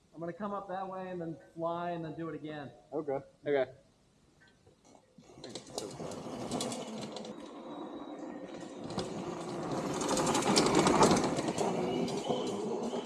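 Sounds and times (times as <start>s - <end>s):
electric motor whirring through chain: 5.4s - 13.0s
tyres crackling over dirt: 8.5s - 13.0s.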